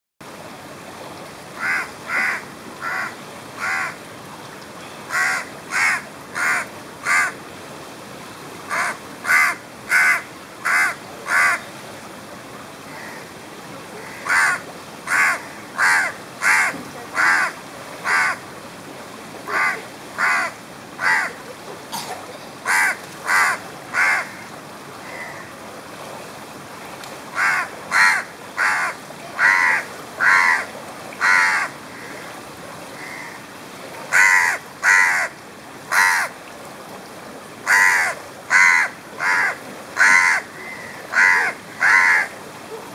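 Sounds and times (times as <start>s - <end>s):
crow cawing: 1.6s - 4.0s, 5.1s - 7.3s, 8.7s - 11.6s, 14.0s - 18.4s, 19.5s - 21.3s, 22.7s - 25.5s, 27.4s - 32.1s, 33.0s - 33.4s, 34.1s - 35.3s, 35.9s - 36.3s, 37.6s - 42.3s.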